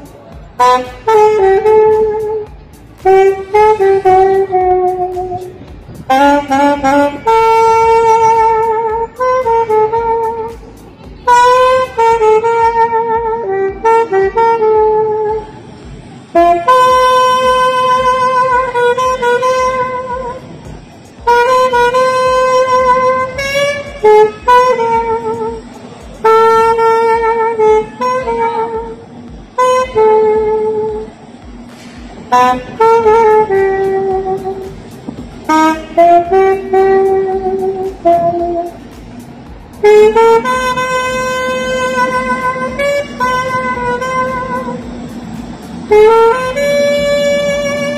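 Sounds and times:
alto saxophone slow melody: 0.0 - 47.9.

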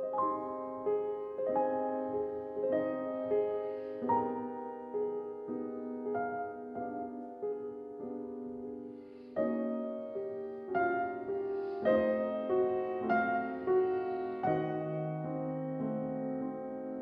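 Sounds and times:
slow soft piano chords: 0.0 - 17.0.

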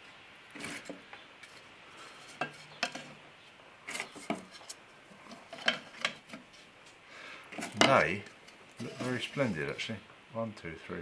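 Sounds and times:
wooden wedges knocking on metal: 7.6 - 8.0.

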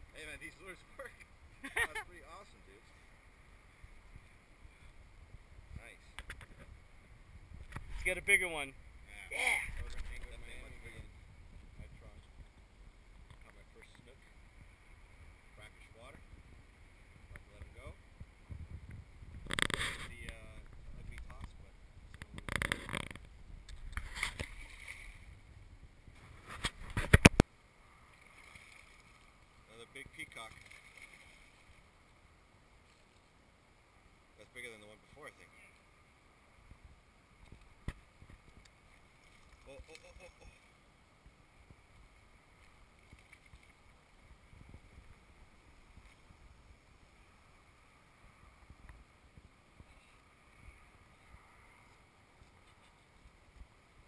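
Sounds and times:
faint steady background: 0.0 - 54.0
wind rumble on microphone: 3.7 - 27.4, 36.5 - 38.7, 43.0 - 54.0.

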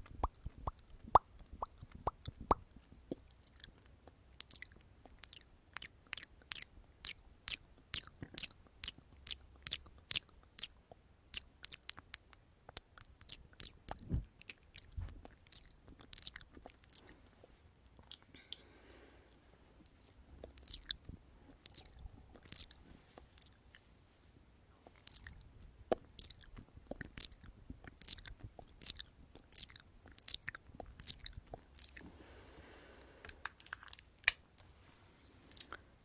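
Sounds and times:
lip smacks and mouth clicks: 0.0 - 17.1, 17.8 - 18.6, 19.8 - 23.9, 24.8 - 32.0
soft rustling: 22.7 - 25.7.

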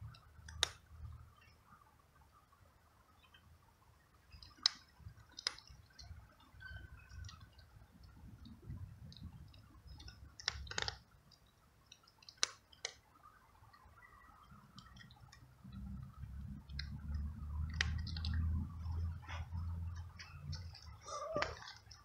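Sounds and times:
cat chewing dry kibble: 4.4 - 6.1, 7.2 - 13.0
low rumble: 15.5 - 21.4.

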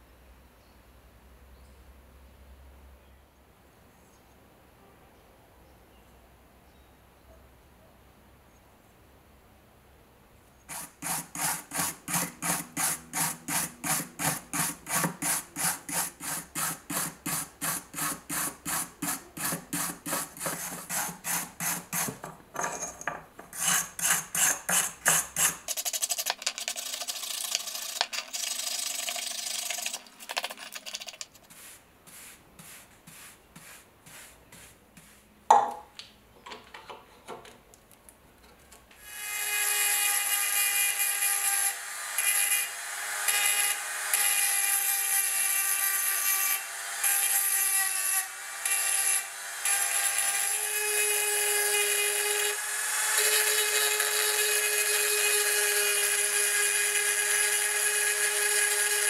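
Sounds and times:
rotary tool whining: 10.7 - 30.5
wire brush scrubbing metal: 10.7 - 35.3.

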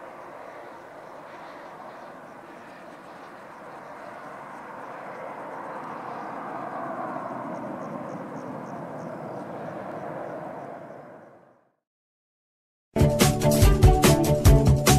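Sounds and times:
jet engines roaring: 0.0 - 11.5.

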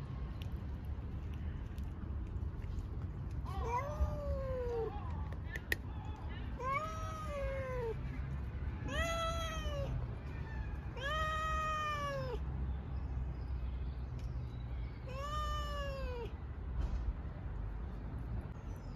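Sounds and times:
cat meowing: 3.5 - 4.9, 6.6 - 8.0, 8.8 - 12.4, 15.1 - 16.3.

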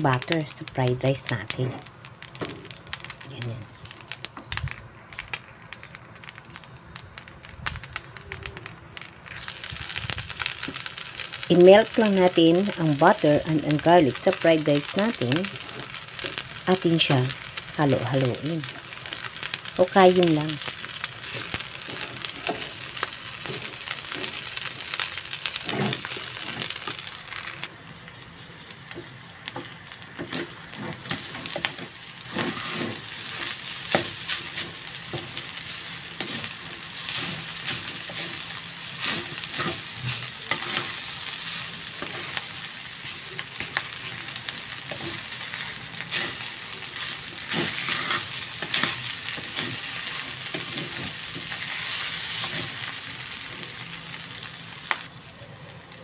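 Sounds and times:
rice sizzling in a wok: 0.0 - 56.0
wooden spatula scraping a wok: 20.6 - 27.4, 30.2 - 42.5, 43.6 - 53.0.

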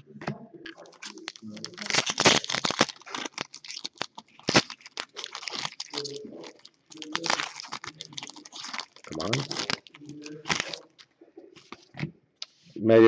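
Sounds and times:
cards rustling: 0.0 - 12.6
wrapper crinkling: 0.6 - 12.0
sharp crack: 0.8 - 11.0.

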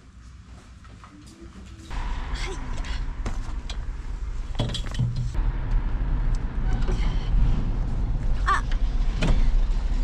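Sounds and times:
motor vehicle rumble: 1.9 - 10.0.

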